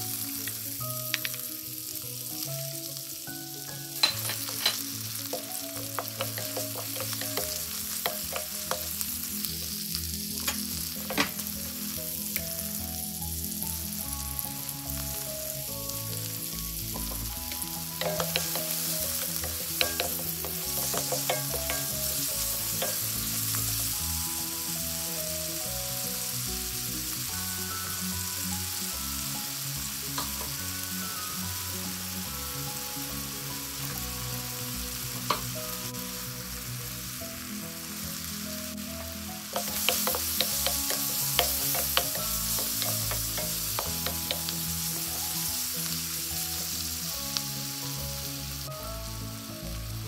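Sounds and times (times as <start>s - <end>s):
onion and garlic sizzling in wok: 0.0s - 50.0s
wooden spoon knocking on metal: 4.0s - 8.9s, 18.0s - 22.1s, 39.6s - 44.5s.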